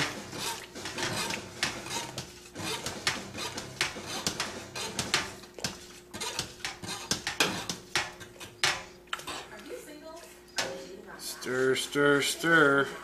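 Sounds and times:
metal utensil scraping a pot: 0.0s - 9.6s.

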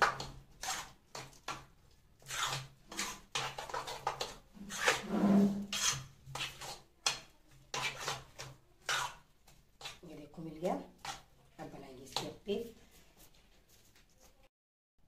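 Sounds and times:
wet batter stirring: 0.0s - 14.5s
spoon scraping steel bowl: 2.2s - 9.2s.

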